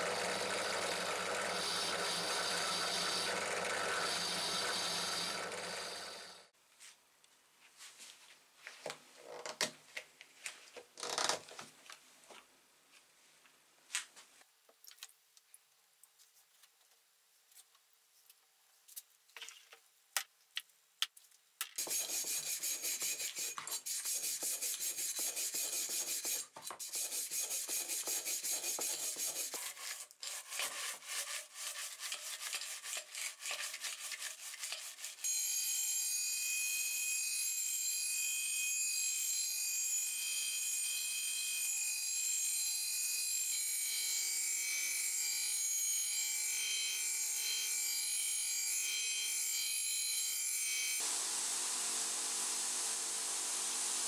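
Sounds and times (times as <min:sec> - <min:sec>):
grinder motor hum: 0:00.0 - 0:06.5, 0:51.0 - 0:54.0
scrubbing metal tube in water: 0:28.0 - 0:35.2.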